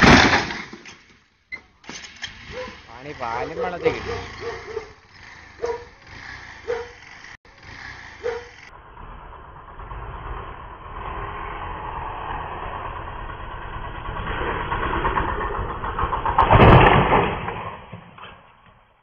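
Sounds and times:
motorcycle engine passing: 2.2 - 16.6.

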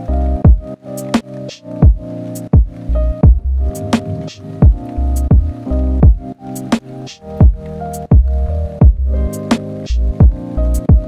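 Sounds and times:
kick drum: 0.4 - 0.7, 1.8 - 3.5, 4.6 - 6.2, 7.4 - 9.1, 10.2 - 11.0
light high percussion hits: 2.6 - 6.8
sustained chords: 2.9 - 6.2.

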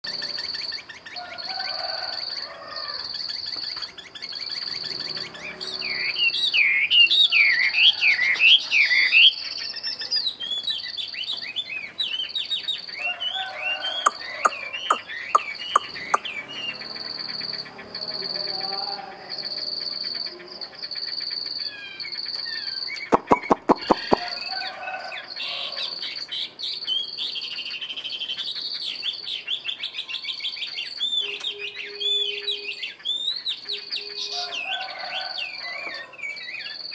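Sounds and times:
bird singing warbled phrases: 0.0 - 36.9
sharp clicks: 23.0 - 24.3.

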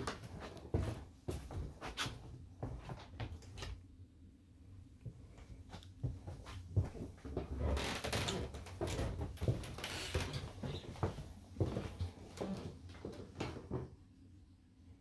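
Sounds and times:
footsteps on hardwood floor: 0.0 - 3.4, 6.0 - 13.9.

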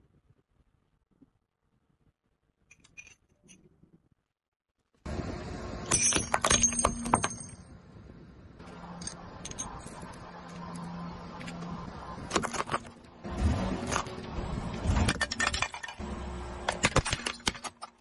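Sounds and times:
car hum: 5.1 - 16.8.

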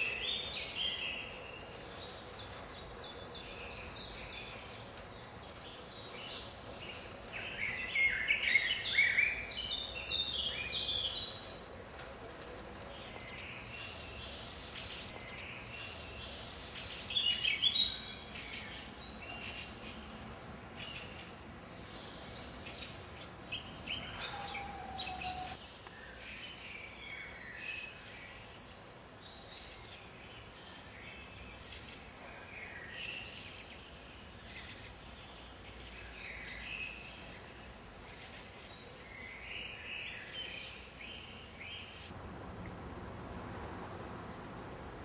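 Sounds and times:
birds chirping and calling: 20.8 - 25.6
low background rumble: 42.1 - 45.0.

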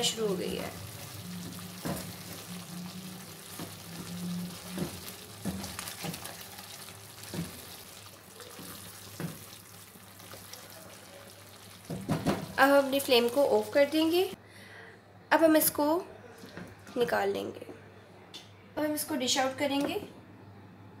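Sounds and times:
sauce sizzling in frying pan: 0.0 - 14.0.

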